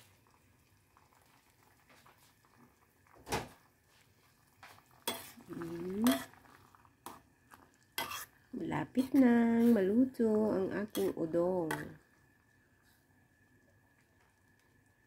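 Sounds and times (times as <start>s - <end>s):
spatula knocking and scraping pot: 5.0s - 6.4s, 8.0s - 8.3s, 10.9s - 12.0s.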